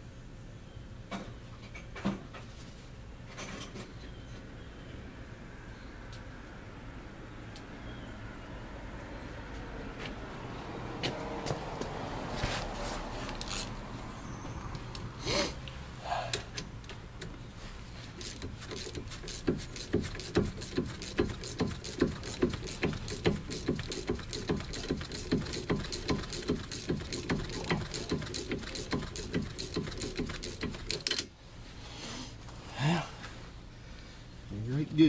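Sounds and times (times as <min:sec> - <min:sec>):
wrench clicking rhythmically: 0:18.2 - 0:31.2.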